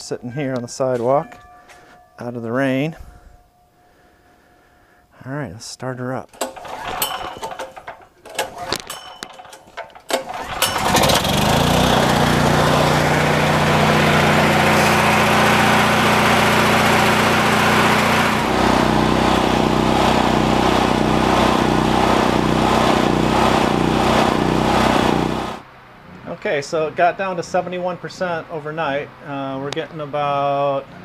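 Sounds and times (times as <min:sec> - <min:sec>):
generator engine running: 0:06.3 - 0:25.6
recoil cord pull: 0:06.4 - 0:11.3.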